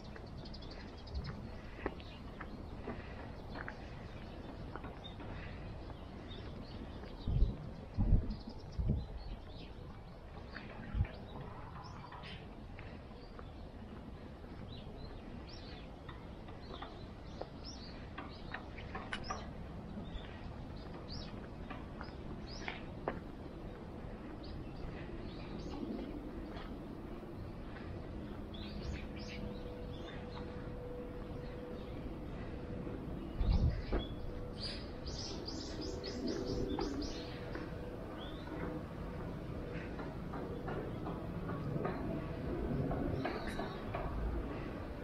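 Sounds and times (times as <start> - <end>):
small birds chirping: 0.0 - 42.3
faint steady hum: 0.0 - 45.0
low street rumble: 0.0 - 45.0.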